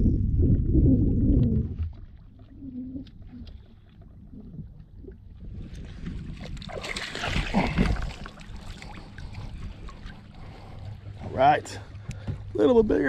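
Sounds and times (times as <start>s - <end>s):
water splashing: 0.9s - 11.2s
water streaming off net: 6.6s - 8.9s.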